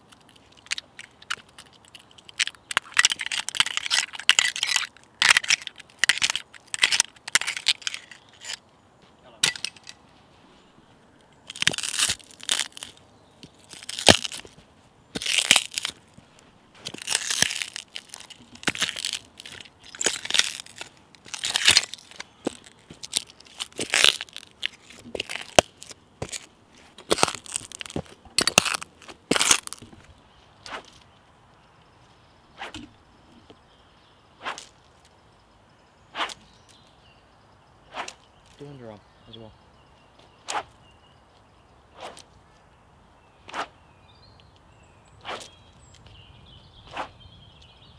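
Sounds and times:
footsteps crunching on leaves: 11.5 - 30.1.

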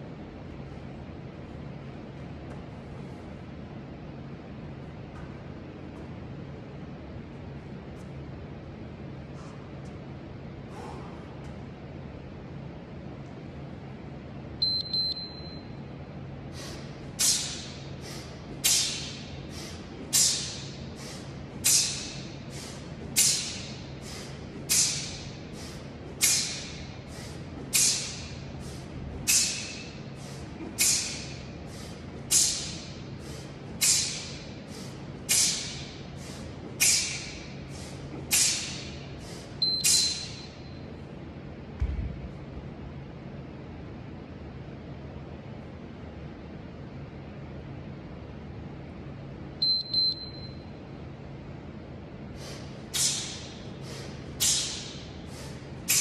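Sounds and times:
man exhaling sharply: 10.7 - 11.4, 16.5 - 39.5, 52.4 - 56.0
interval timer beep: 14.6 - 15.8, 49.6 - 50.7.

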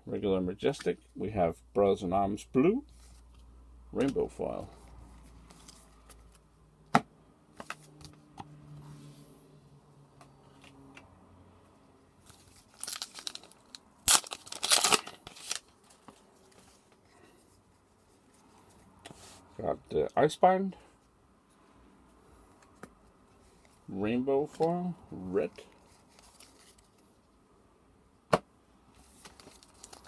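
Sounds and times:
foil wrapper crinkling and tearing: 12.3 - 16.0, 29.2 - 30.0.

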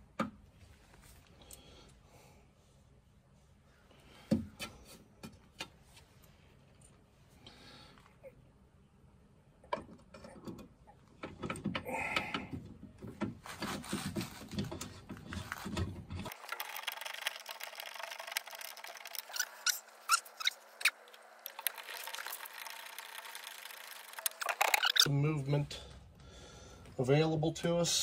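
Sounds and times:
metal scraping and rubbing: 13.4 - 25.1.

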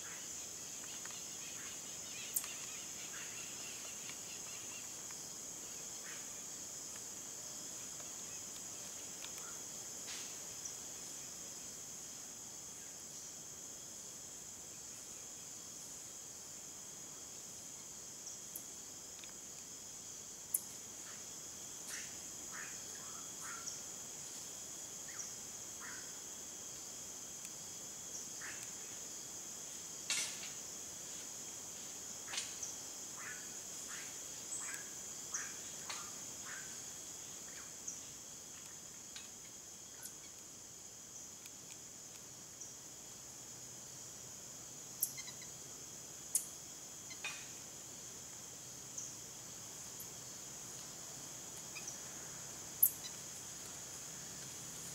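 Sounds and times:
high-pitched insect chorus: 0.0 - 54.9
sharp chirps and clicks: 0.8 - 5.1.

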